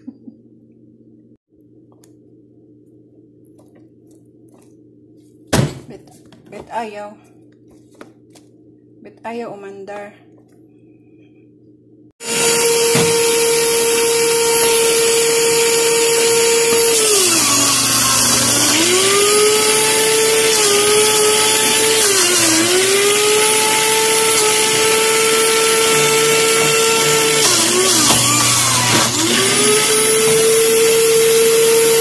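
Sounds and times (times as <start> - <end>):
electric juicer motor whining: 12.2 - 32.0.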